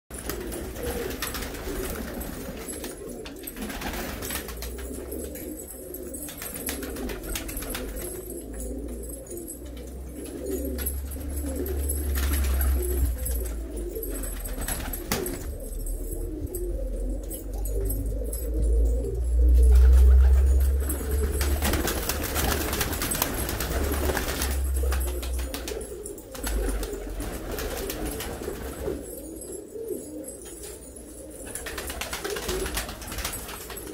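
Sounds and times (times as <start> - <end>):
pigeons cooing: 0.1 - 33.9
wing flaps: 10.4 - 16.7, 19.5 - 29.0.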